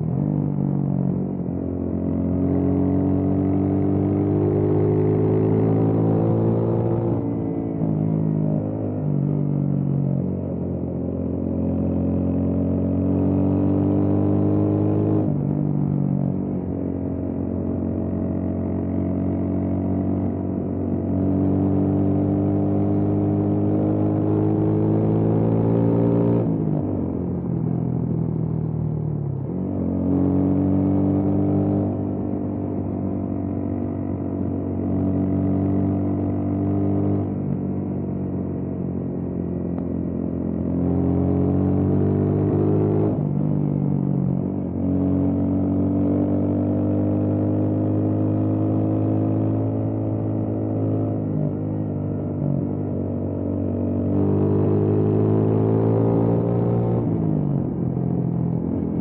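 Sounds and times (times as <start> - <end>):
motorcycle engine accelerating: 0.0 - 59.0.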